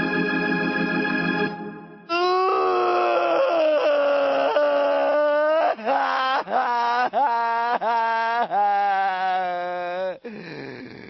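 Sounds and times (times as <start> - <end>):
organ chord: 0.0 - 2.6.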